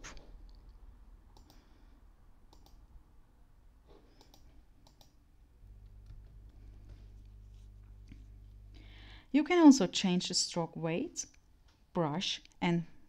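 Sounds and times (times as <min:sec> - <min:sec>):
steady low hum: 0:00.0 - 0:09.7
faint computer mouse clicks: 0:01.4 - 0:01.6, 0:02.5 - 0:02.8, 0:04.1 - 0:05.2.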